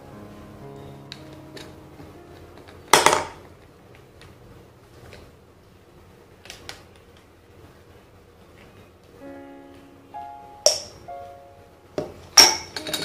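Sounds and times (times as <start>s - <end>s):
faint background music: 0.0s - 5.2s, 8.2s - 13.0s.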